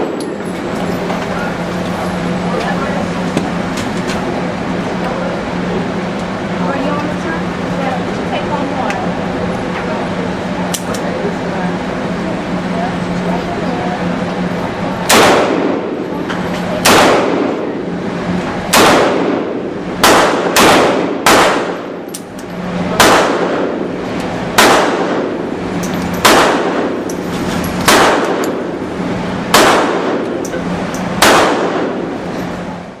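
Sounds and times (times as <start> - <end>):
ventilation hum: 0.0 - 33.0
handgun shots echoing: 15.1 - 15.8, 16.8 - 17.6, 18.7 - 19.4, 20.0 - 22.2, 23.0 - 23.7, 24.6 - 25.2, 26.2 - 26.9, 27.8 - 28.6, 29.5 - 30.4, 31.2 - 32.0.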